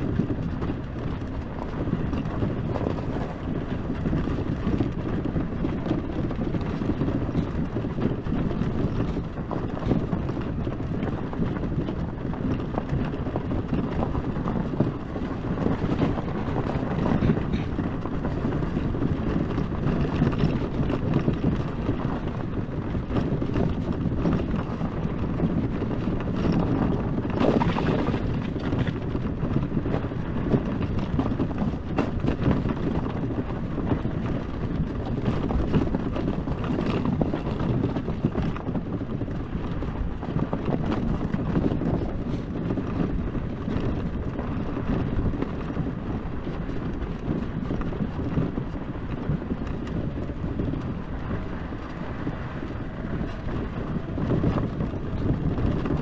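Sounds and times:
vehicle rumbling on dirt track: 0:00.0 - 0:56.0
wind buffeting microphone: 0:00.0 - 0:56.0
knocks and rattles: 0:26.0 - 0:29.0.

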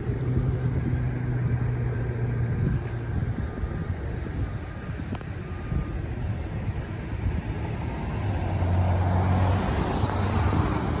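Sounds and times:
car driving past: 0:08.1 - 0:11.0.

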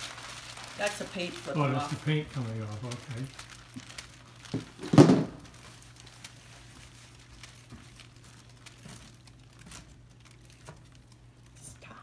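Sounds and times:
paint spattering on plastic sheeting: 0:00.0 - 0:11.5.

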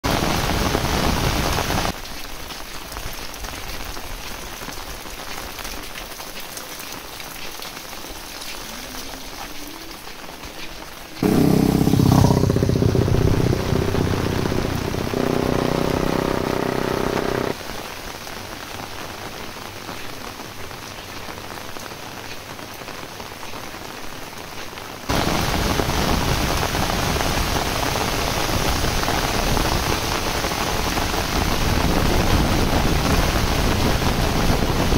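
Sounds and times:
heavy rain falling: 0:00.0 - 0:34.9
drone with steady tones: 0:11.2 - 0:17.6.

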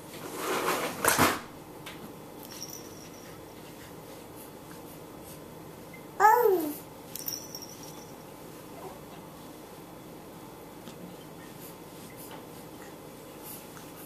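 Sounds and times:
baby cooing: 0:06.2 - 0:06.8.

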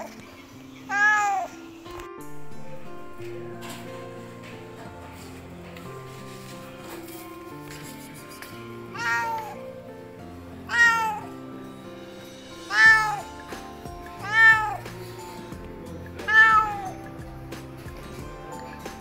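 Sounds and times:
cat meowing: 0:00.9 - 0:01.6, 0:08.9 - 0:09.6, 0:10.6 - 0:11.4, 0:12.6 - 0:13.4, 0:14.0 - 0:15.0, 0:16.2 - 0:17.1.

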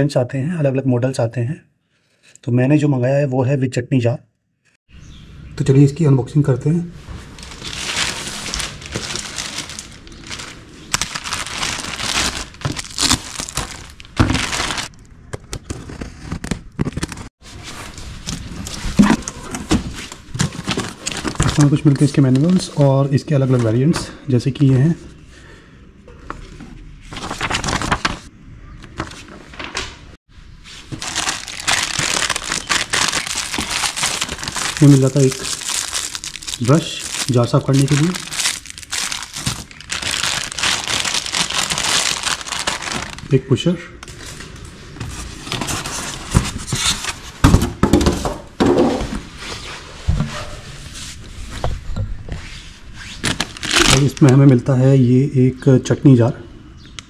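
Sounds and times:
paper leaflets rustling: 0:07.0 - 0:14.9, 0:15.6 - 0:22.8, 0:27.0 - 0:28.3, 0:30.8 - 0:43.3, 0:53.2 - 0:54.4
plastic bag crinkling: 0:07.2 - 0:15.0, 0:30.9 - 0:43.4, 0:53.2 - 0:54.5.

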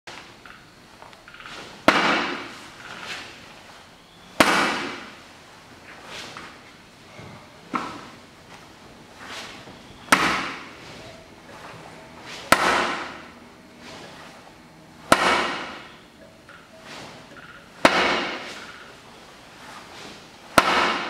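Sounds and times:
hand striking wooden post: 0:10.1 - 0:10.7, 0:12.5 - 0:13.3, 0:15.1 - 0:15.9, 0:17.4 - 0:18.8, 0:20.6 - 0:21.0.

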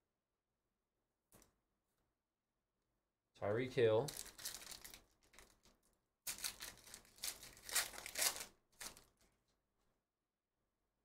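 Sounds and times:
foil wrapper tearing and crinkling: 0:04.1 - 0:05.7, 0:06.3 - 0:09.2.

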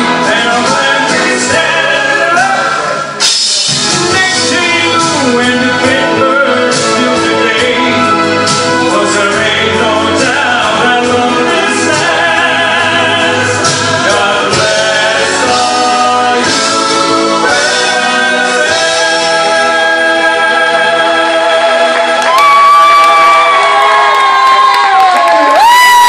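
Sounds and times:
man singing into microphone: 0:00.0 - 0:22.8
musical accompaniment: 0:00.0 - 0:26.0.

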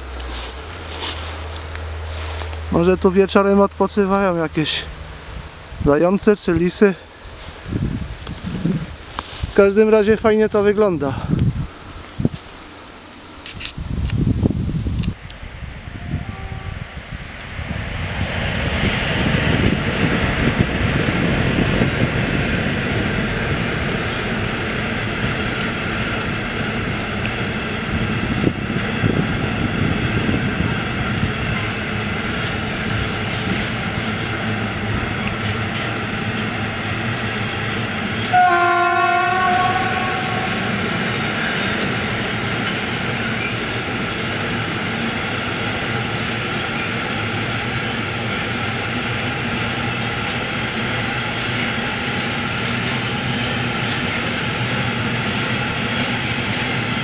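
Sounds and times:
freight train rumbling past: 0:00.0 - 0:57.0
train horn: 0:15.8 - 0:17.0, 0:38.3 - 0:40.7.

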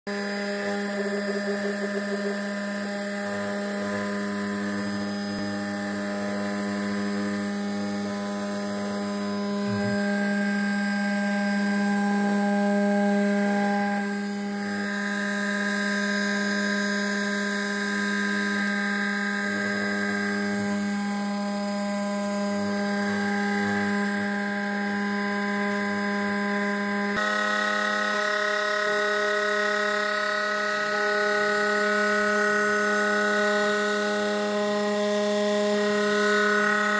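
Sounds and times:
cnc spindle whine milling: 0:00.1 - 0:36.9.

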